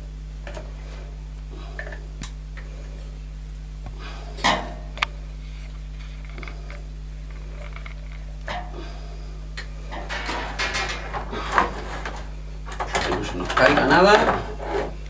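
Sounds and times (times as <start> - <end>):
hands rubbing plastic panel: 10.0 - 15.0.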